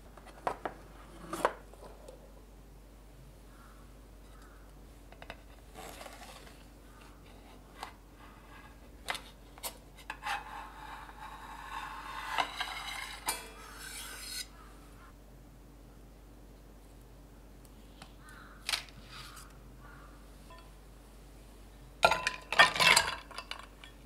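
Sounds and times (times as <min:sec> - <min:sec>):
metal rasping on plastic film: 0:10.3 - 0:14.6.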